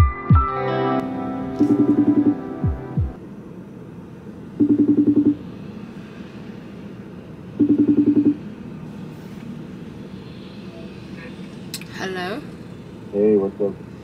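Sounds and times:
steady low hum: 1.2 - 11.8
telephone ringing buzzes: 4.6 - 5.4, 7.6 - 8.4.

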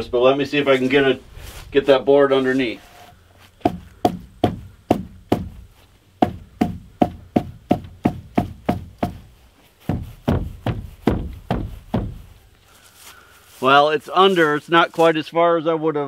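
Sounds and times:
wooden board being pounded: 3.6 - 12.4.

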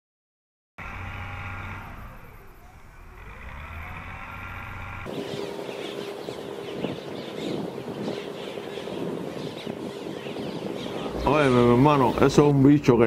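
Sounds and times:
engine running: 0.8 - 8.7
steady hum: 0.8 - 12.4
bird chirps: 1.6 - 12.3.

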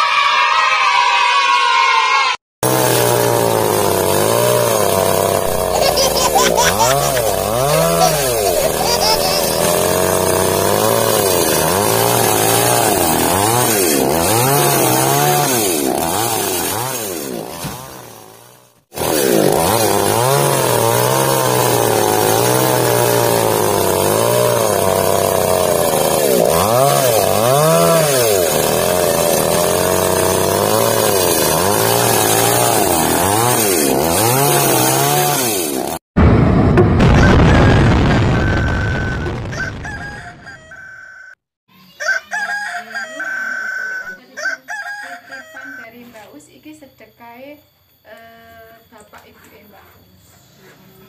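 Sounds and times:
engine revving: 2.6 - 38.8.

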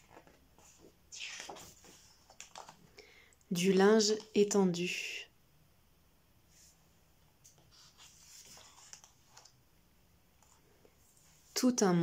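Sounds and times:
paper page rustling: 0.0 - 2.8, 7.6 - 9.6.

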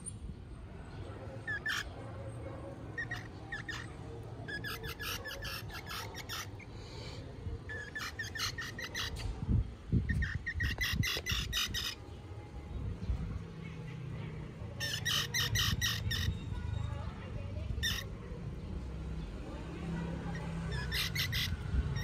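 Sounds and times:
baby squirrel chirping: 1.4 - 2.0, 2.9 - 6.8, 7.6 - 12.1, 14.7 - 16.9, 17.6 - 18.2, 20.2 - 22.0.

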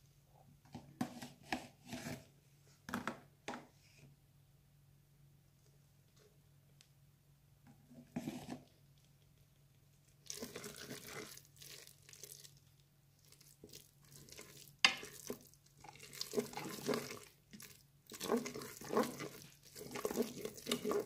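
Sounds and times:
wooden spoon stirring risotto: 7.6 - 21.0.

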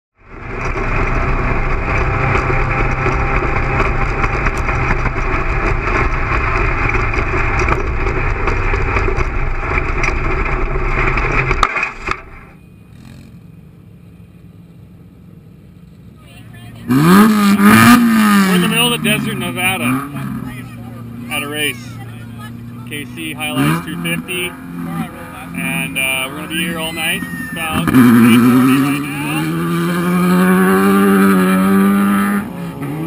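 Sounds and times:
muffled race vehicle engine: 0.2 - 33.0.

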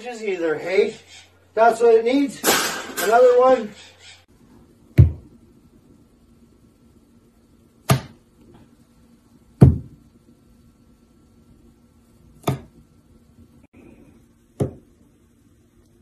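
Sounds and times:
knocks on countertop: 5.0 - 5.2, 9.6 - 10.0.

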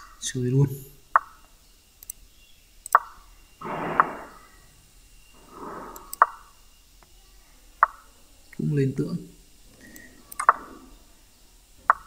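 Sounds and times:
soft breaths out: 5.4 - 6.2, 9.7 - 11.1
chess piece move clicks: 5.8 - 6.5, 7.8 - 8.1, 9.8 - 10.8.

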